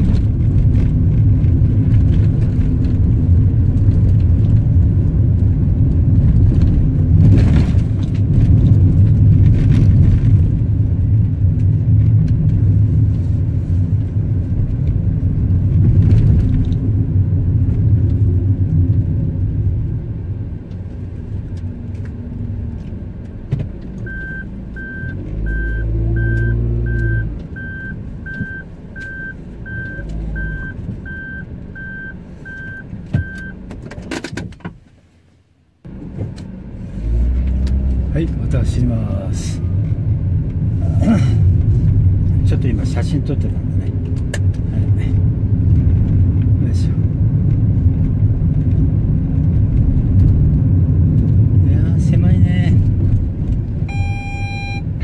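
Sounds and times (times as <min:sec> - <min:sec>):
car engine and tyre noise: 0:00.0 - 0:55.0
car warning chime beeping: 0:24.0 - 0:33.6, 0:53.9 - 0:55.0.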